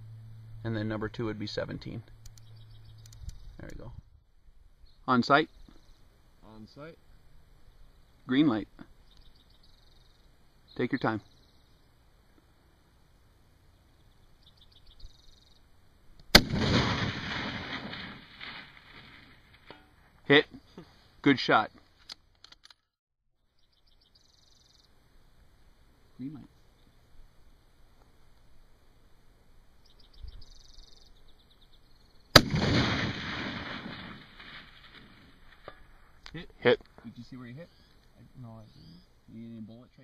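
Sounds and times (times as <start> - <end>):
rifle shot with echo: 16.3 - 19.7, 32.3 - 35.7.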